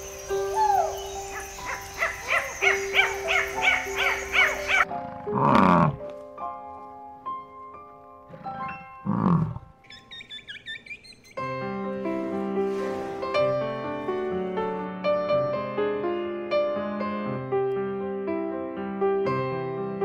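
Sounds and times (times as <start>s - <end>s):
light music: 0.0s - 9.5s
lemurs calling: 0.6s - 6.0s, 9.3s - 11.6s
bison bellowing: 5.0s - 6.0s.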